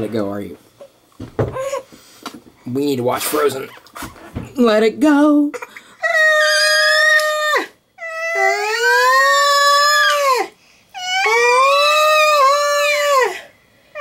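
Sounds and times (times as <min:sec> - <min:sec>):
man howling in falsetto: 0:06.0 - 0:14.0.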